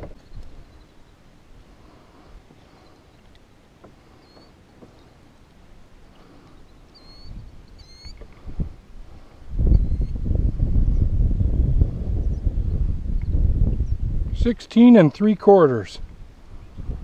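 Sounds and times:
bird chirping: 4.1 - 5.2, 6.4 - 8.2.

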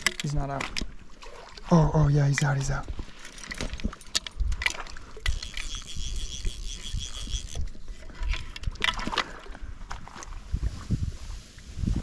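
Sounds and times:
fishing gear knocking: 0.0 - 1.0, 2.2 - 9.5
water splashing: 0.0 - 11.7
fast high-pitched ticking: 5.3 - 7.6.

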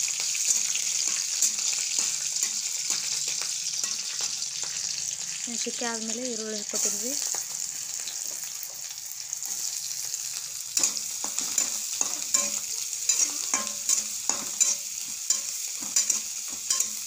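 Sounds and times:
onions sizzling in hot oil: 0.0 - 17.0
spatula scraping metal pan: 10.8 - 17.0.

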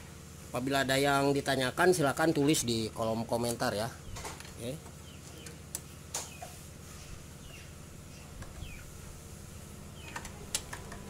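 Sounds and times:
steady low hum: 0.0 - 11.0
faint bird chirps: 6.2 - 9.0.

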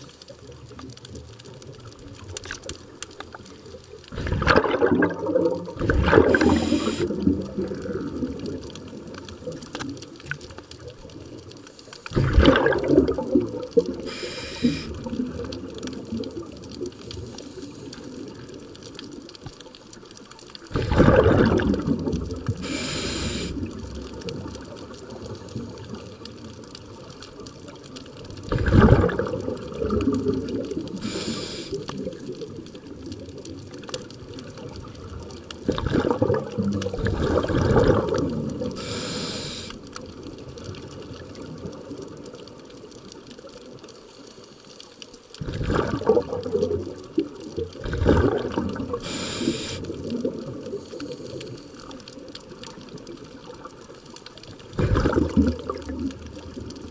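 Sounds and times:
exhaled bubbles rushing: 4.0 - 11.5, 12.1 - 19.3, 20.6 - 42.4, 45.4 - 56.9
regulator inhalation hiss: 6.3 - 7.1, 14.0 - 15.0, 22.6 - 23.7, 31.0 - 31.9, 38.8 - 39.8, 49.0 - 50.0.

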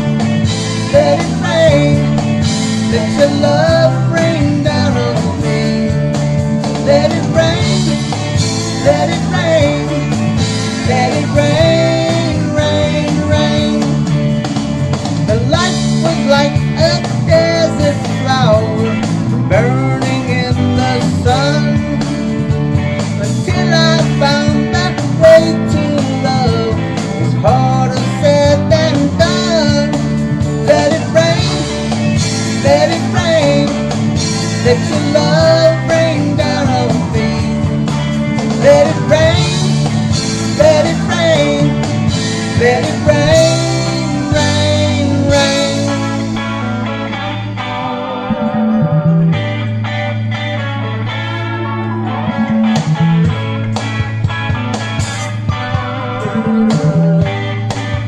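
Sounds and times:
man singing: 0.0 - 14.3, 15.2 - 22.5, 23.2 - 47.2
rock backing track with guitar: 0.0 - 58.0.

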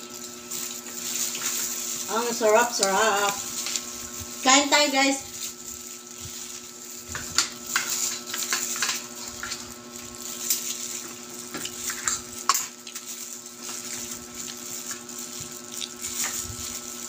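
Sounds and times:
steady background hum: 0.0 - 17.0
person chewing: 5.3 - 17.0.

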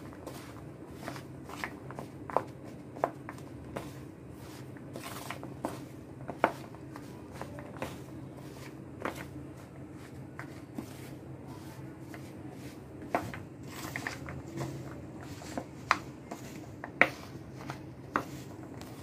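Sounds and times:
coated nuts scraping and rustling: 0.0 - 19.0.

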